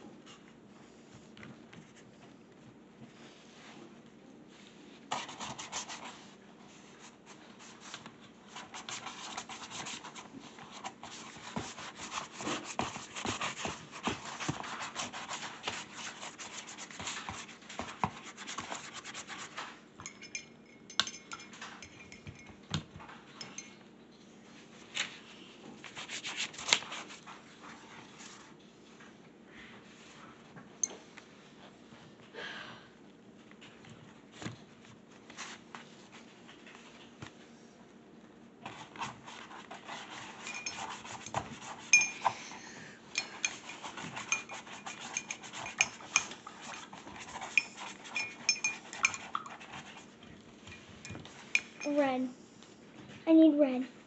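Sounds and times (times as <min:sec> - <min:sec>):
paintbrush scrubbing paper: 0:08.5 - 0:19.6, 0:38.7 - 0:42.0, 0:43.4 - 0:50.2.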